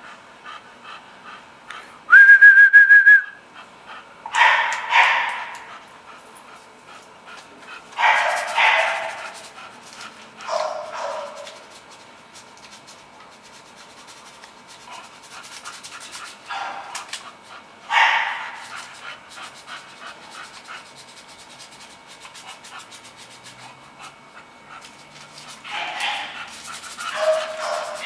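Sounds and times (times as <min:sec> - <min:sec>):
dog panting: 0:00.0 - 0:01.9, 0:03.5 - 0:28.0
dog barking: 0:04.3 - 0:05.7, 0:08.0 - 0:09.5, 0:10.4 - 0:11.6, 0:16.5 - 0:17.0, 0:17.9 - 0:18.8, 0:25.7 - 0:28.0.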